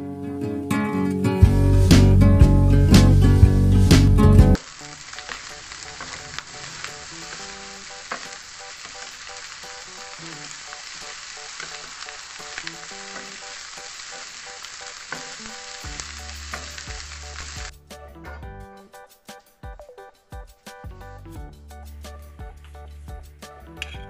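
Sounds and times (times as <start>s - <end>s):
rice sizzling in a pan: 1.5s - 2.2s, 2.8s - 17.7s.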